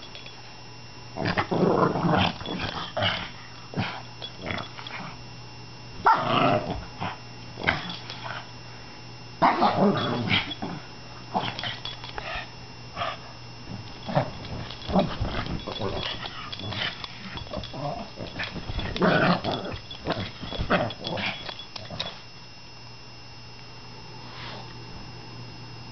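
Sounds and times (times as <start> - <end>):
dog growling and barking: 1.2 - 5.2, 6.0 - 8.4, 9.4 - 22.2.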